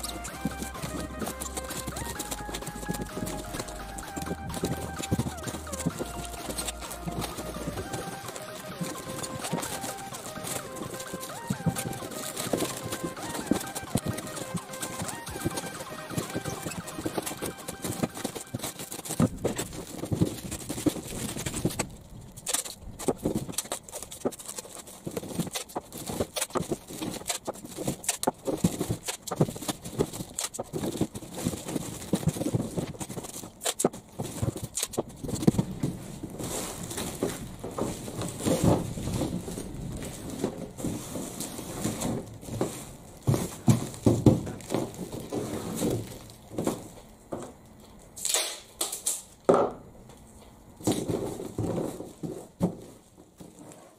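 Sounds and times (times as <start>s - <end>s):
plastic film crinkling: 0.0s - 49.2s.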